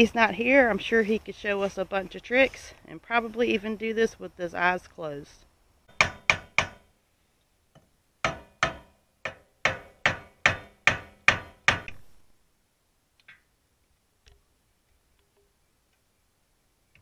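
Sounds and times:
hammer striking metal drum: 5.9s - 6.8s, 8.2s - 12.0s.

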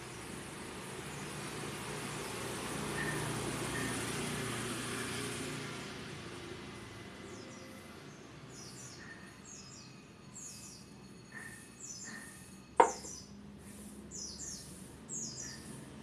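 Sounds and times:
sharp knock: 12.8s - 13.2s
small bird chirping: 14.2s - 15.9s.

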